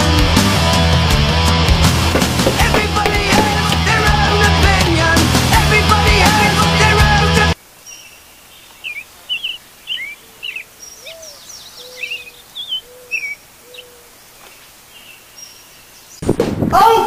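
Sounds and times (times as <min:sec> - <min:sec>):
birds chirping: 0:01.9 - 0:05.9, 0:07.5 - 0:16.3.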